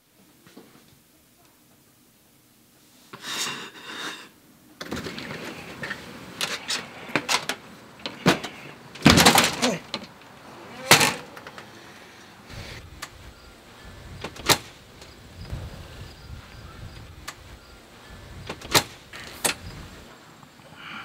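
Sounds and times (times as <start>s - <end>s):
door banging: 6.5s - 11.7s, 14.0s - 20.1s
door latch and handle clicks: 14.2s - 15.1s, 18.4s - 19.7s.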